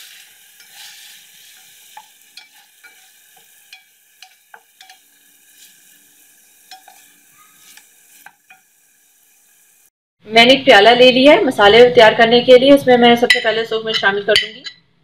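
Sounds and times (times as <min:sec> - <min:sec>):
chicken sizzling in oil: 0:00.0 - 0:09.9.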